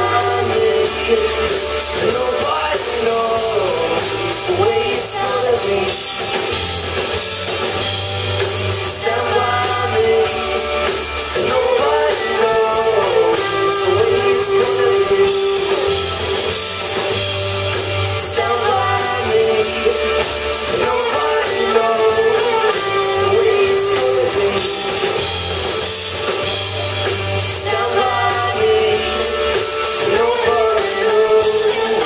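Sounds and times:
person singing: 0:00.0 - 0:06.5, 0:08.7 - 0:17.2, 0:17.9 - 0:25.2, 0:27.4 - 0:32.0
rock band playing: 0:00.0 - 0:32.0.

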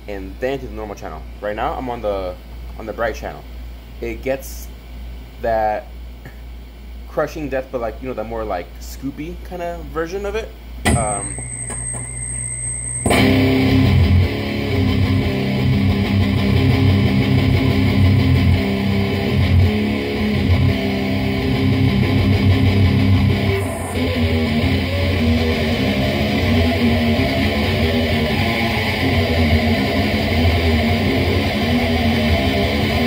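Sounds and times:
distorted electric guitar riffs: 0:10.9 - 0:33.0.

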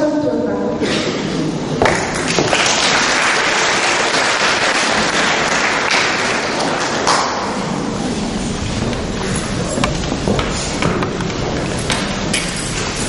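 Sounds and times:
audience applauding: 0:01.8 - 0:07.7.

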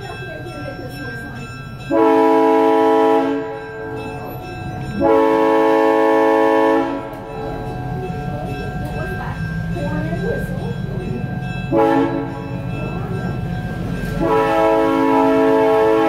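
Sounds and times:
low train rumble: 0:00.0 - 0:16.0
locomotive horn chord: 0:01.9 - 0:03.7, 0:05.0 - 0:07.4, 0:11.7 - 0:12.6, 0:14.1 - 0:16.0.

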